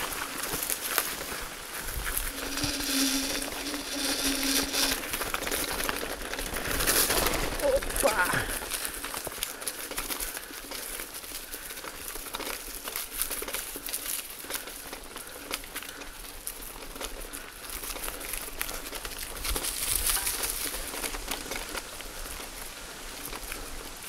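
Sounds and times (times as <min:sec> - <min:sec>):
bicycle tyres crunching leaves: 0:00.0 - 0:24.0
bike rattling: 0:00.0 - 0:24.0.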